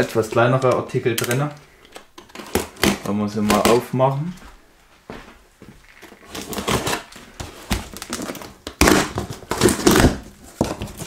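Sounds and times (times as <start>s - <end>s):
packing tape ripping: 2.1s - 3.7s, 6.0s - 11.0s
cardboard rustling: 5.8s - 11.0s.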